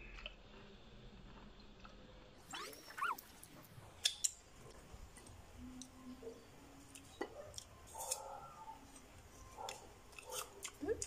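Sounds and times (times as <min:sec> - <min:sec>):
eating sounds at a table: 0:06.8 - 0:11.0.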